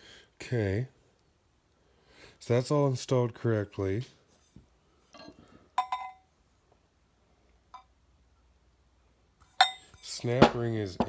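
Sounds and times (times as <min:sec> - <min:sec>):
light metallic clinks of steel parts: 0:09.5 - 0:10.1.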